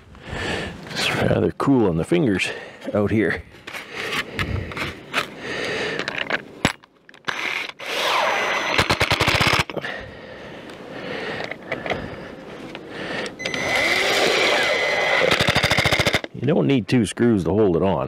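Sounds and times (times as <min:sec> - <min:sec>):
impact driver whirring: 0:07.3 - 0:09.7, 0:13.4 - 0:16.3.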